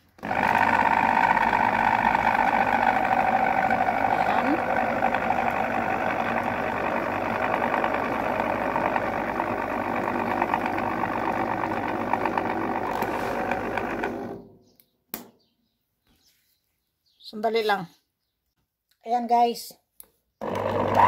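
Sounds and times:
electric food chopper running: 0.0s - 14.5s, 20.4s - 21.0s.

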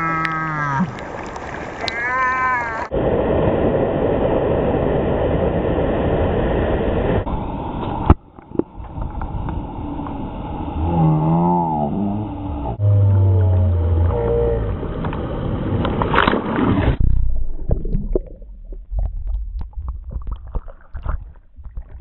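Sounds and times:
churning wave water rushing: 0.0s - 17.1s.

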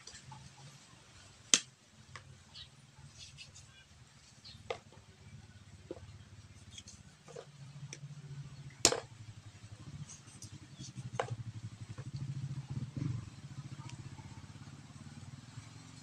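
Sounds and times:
low motor hum: 3.9s - 16.0s.

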